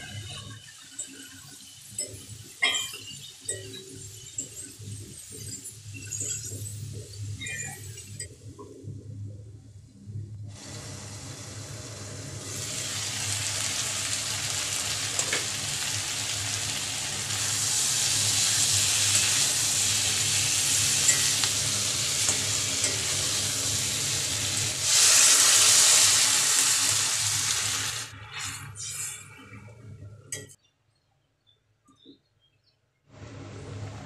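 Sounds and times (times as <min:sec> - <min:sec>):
vegetables sizzling in oil: 0:00.0 - 0:08.2, 0:10.5 - 0:29.1
water hitting hot pan: 0:12.5 - 0:26.6.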